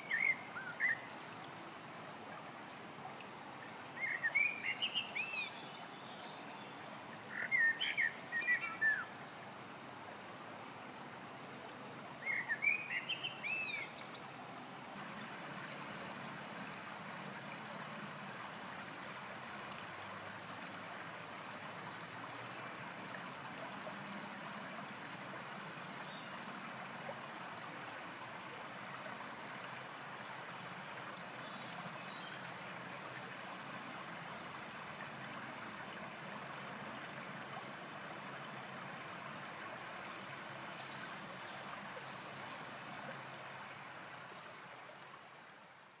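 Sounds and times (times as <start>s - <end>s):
songbird singing: 0.0s - 1.6s, 2.4s - 14.4s, 15.0s - 15.7s, 16.8s - 21.7s, 30.2s - 34.8s, 35.9s - 44.5s
stream babbling over stones: 0.0s - 46.0s.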